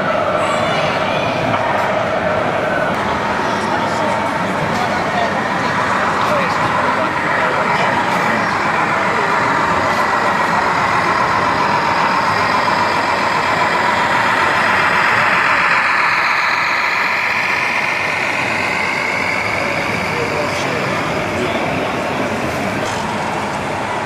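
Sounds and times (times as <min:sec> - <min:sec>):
model truck diesel engine sound: 0:03.8 - 0:24.0.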